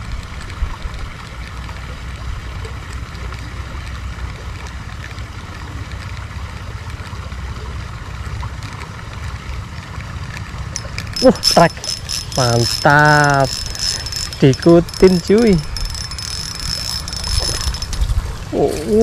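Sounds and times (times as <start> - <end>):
flowing canal water: 0.0 - 19.0
wind rumble on microphone: 14.8 - 19.0.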